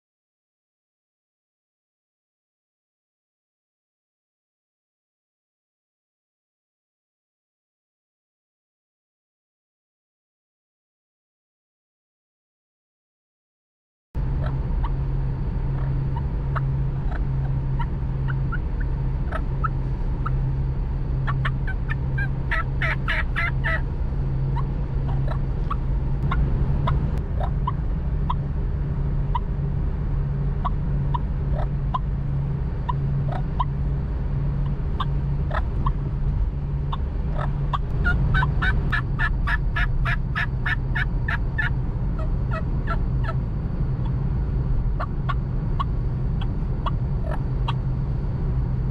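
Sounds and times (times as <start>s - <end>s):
car engine and road noise: 14.2s - 48.9s
turkey mouth call notes: 21.2s - 23.8s.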